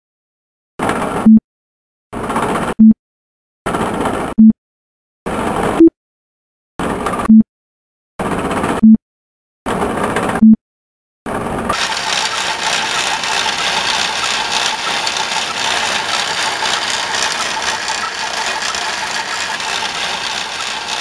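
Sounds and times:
mechanical whirring rattle: 0:11.7 - 0:21.0.

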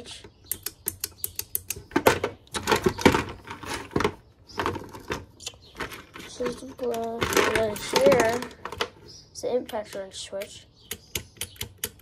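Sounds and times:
small parts clattering in plastic bin: 0:02.0 - 0:09.0.

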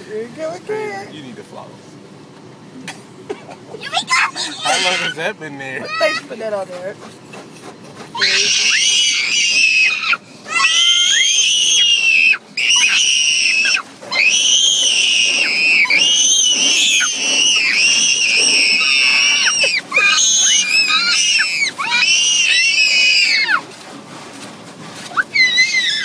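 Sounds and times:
toddler screaming: 0:03.8 - 0:05.2, 0:08.2 - 0:23.7, 0:25.1 - 0:26.0.

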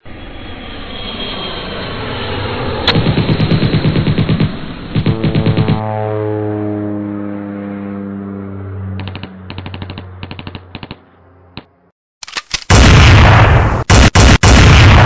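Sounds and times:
humming tone sinking in pitch: 0:00.0 - 0:03.0, 0:04.7 - 0:10.2
machine-gun fire: 0:02.9 - 0:05.8, 0:09.0 - 0:11.0, 0:12.5 - 0:15.0
loud blast: 0:12.7 - 0:15.0.

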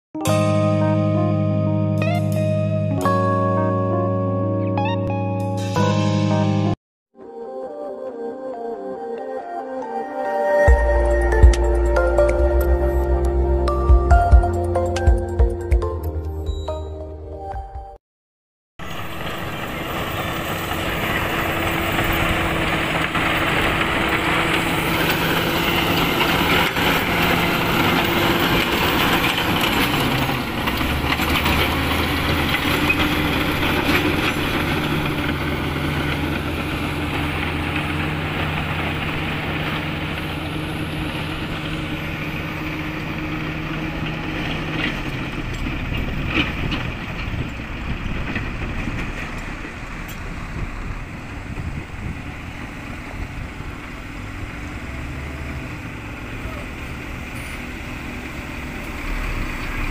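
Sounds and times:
bulldozer diesel engine: 0:18.8 - 0:59.9
track clatter: 0:18.8 - 0:59.9.

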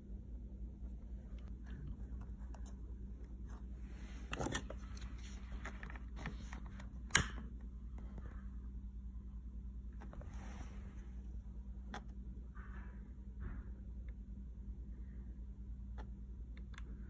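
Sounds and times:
steady low hum: 0:00.0 - 0:17.0
handling wires and plastic switch: 0:04.2 - 0:07.7.

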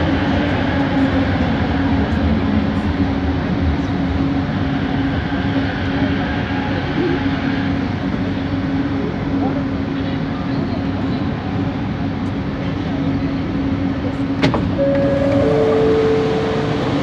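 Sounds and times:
train car rumbling: 0:00.0 - 0:17.0
train motor humming: 0:14.4 - 0:17.0.

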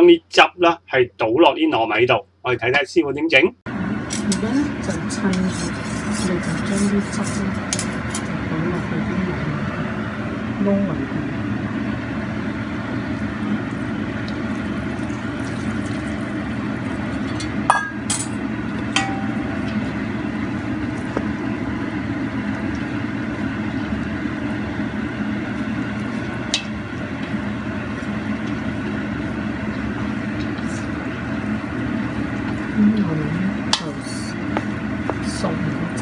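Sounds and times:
spoon clinking against metal bowl: 0:17.3 - 0:18.4, 0:19.0 - 0:19.8.

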